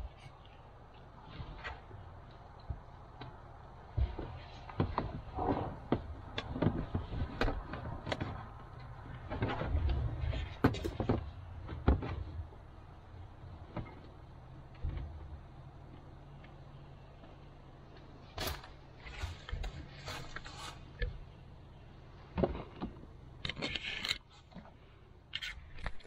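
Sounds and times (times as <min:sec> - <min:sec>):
rustling: 0:18.0 - 0:21.4.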